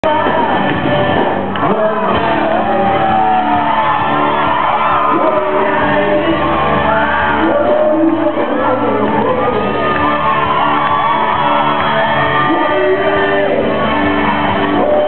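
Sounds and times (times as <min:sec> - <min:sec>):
man singing into a microphone: 0:00.0 - 0:03.7, 0:04.8 - 0:10.0, 0:12.1 - 0:15.0
fans shouting and whooping: 0:00.0 - 0:15.0
live rock band playing: 0:00.0 - 0:15.0.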